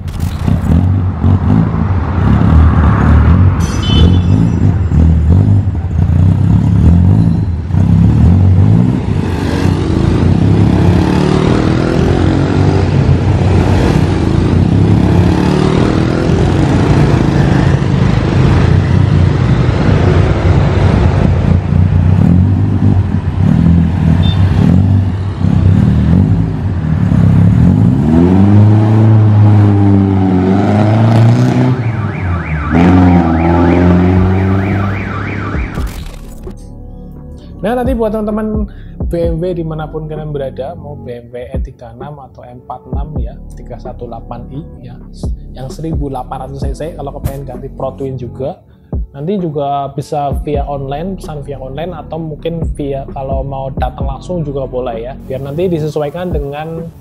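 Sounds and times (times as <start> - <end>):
car engine revving and driving off: 0.0 - 36.8.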